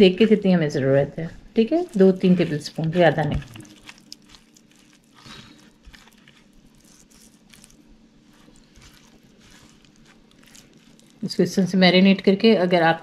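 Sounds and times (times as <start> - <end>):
faint steady hum: 0.0 - 13.0
fingers squishing marinade on fish: 1.6 - 12.1.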